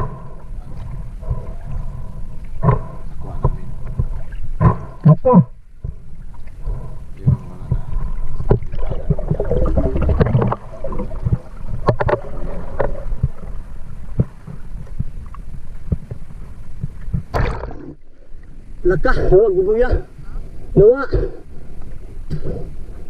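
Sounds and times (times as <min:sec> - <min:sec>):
underwater knocks and clicks: 0:00.0 - 0:18.0
underwater water rumbling: 0:00.0 - 0:23.0.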